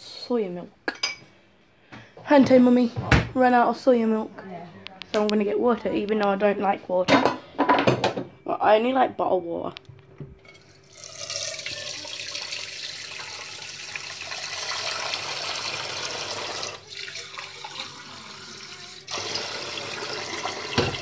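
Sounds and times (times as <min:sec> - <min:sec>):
tap running into sink: 0:20.4 - 0:21.0.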